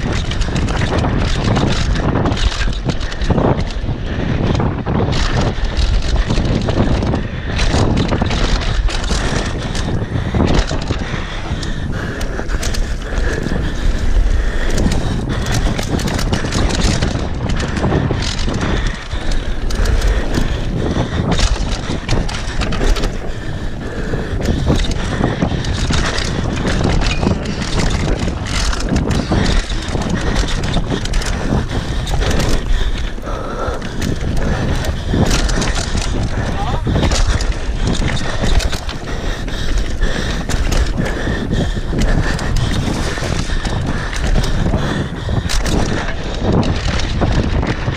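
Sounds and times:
bike rattling knocks: 0.0 - 47.9
bike tyres on dirt: 0.0 - 47.9
wind buffeting microphone: 0.0 - 47.9.

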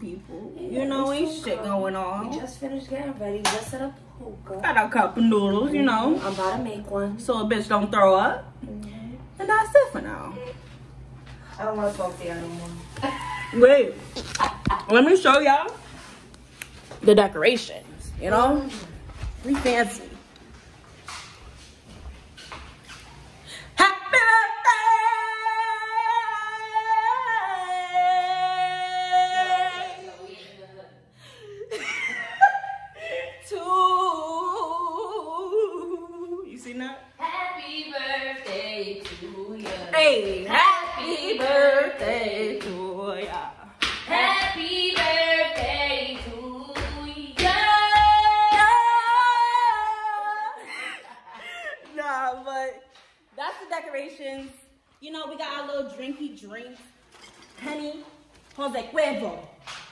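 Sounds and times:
woman singing unaccompanied: 23.8 - 30.3, 33.4 - 50.6.

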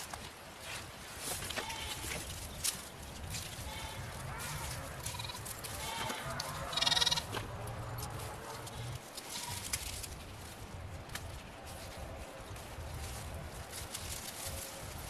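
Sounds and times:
rustle of dry vines: 0.0 - 15.0
goat bleating: 3.6 - 9.7.

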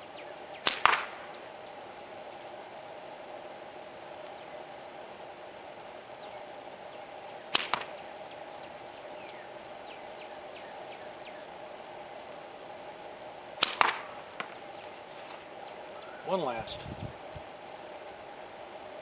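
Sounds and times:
steady hum: 0.0 - 19.0
slingshot bands snapping: 0.6 - 1.2, 7.6 - 8.0, 13.6 - 14.5
shot striking target: 0.7 - 1.2.

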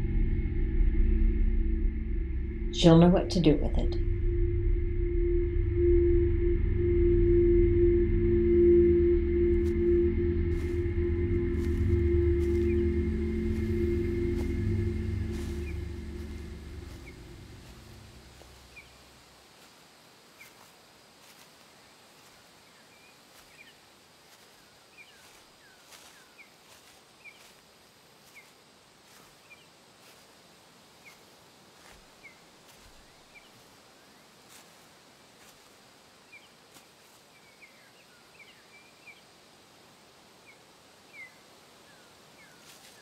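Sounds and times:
low drone: 0.0 - 18.9
small birds chirping: 11.6 - 21.5, 22.2 - 39.4, 40.4 - 43.0.

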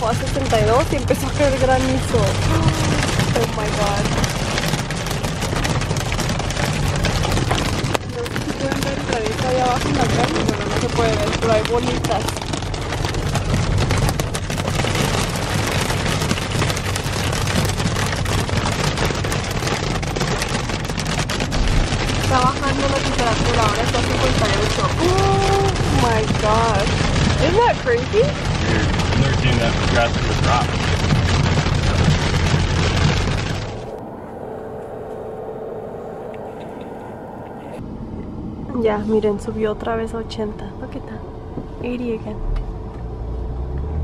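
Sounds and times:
hail and rain pelting car roof: 0.0 - 33.9
low road drone: 0.0 - 44.0.

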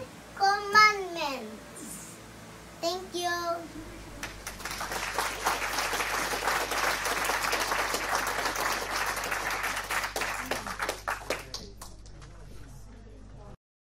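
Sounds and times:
applause: 4.2 - 12.5.

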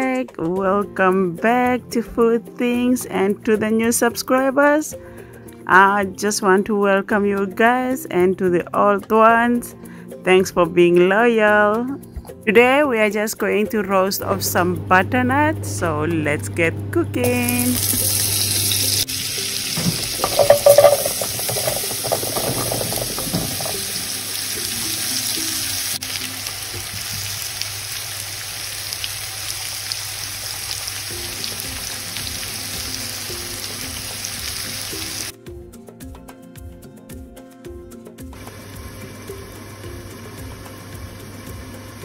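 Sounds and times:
faint background music: 0.0 - 28.7
butter sizzling in a pan: 17.6 - 35.3, 38.4 - 42.0.

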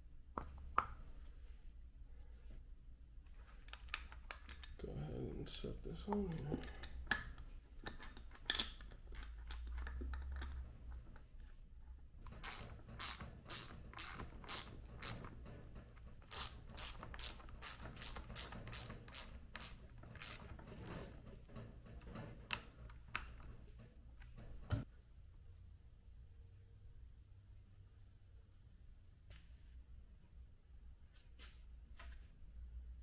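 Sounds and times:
ratchet wrench clicking: 12.4 - 15.3, 16.3 - 21.1.

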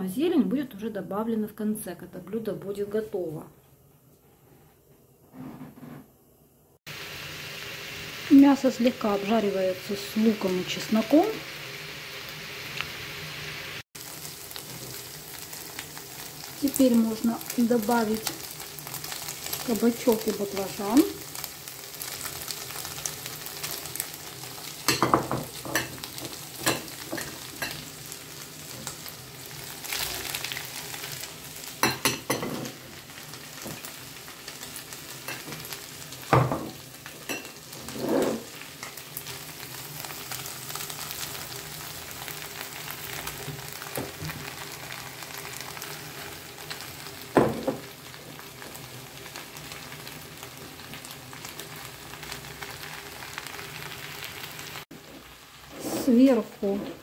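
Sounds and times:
meat and vegetables sizzling in pan: 6.9 - 57.0
stirring knocks and scrapes: 37.4 - 39.0.

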